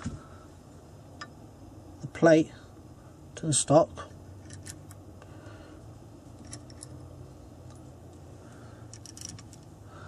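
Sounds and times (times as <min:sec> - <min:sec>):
low steady hum: 0:00.0 - 0:10.0
small screws clicking on metal: 0:06.4 - 0:07.0, 0:08.9 - 0:09.7.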